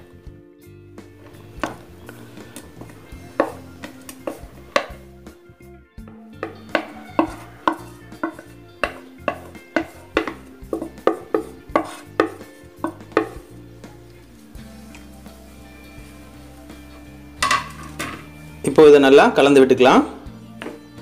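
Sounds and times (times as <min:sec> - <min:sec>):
spatula clattering in pan: 0:03.3 - 0:05.1, 0:06.3 - 0:13.6, 0:17.4 - 0:18.4.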